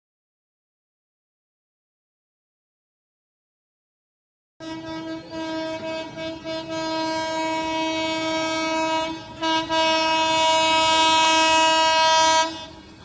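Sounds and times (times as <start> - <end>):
locomotive horn blasts: 4.6 - 13.0.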